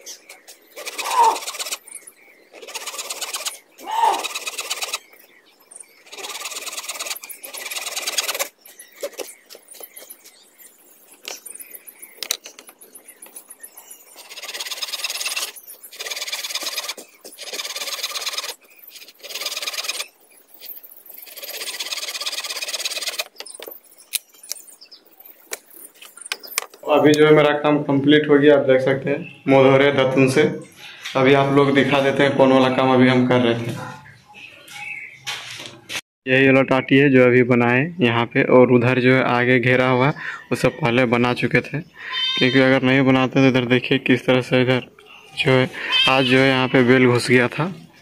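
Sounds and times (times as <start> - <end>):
blade scraping bamboo: 0.7 - 5.2, 6.1 - 9.4, 14.1 - 23.6.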